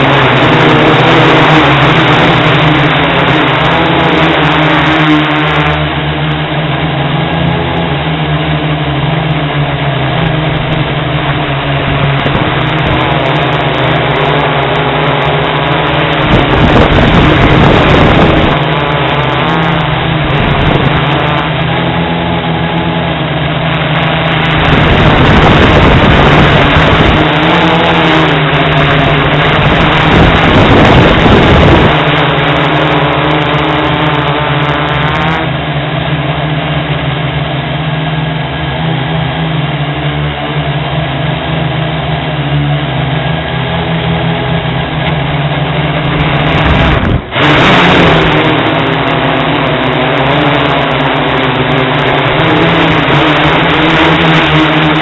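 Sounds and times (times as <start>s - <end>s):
drone propellers humming: 0.0s - 55.0s
wind buffeting microphone: 10.1s - 33.4s, 45.9s - 55.0s.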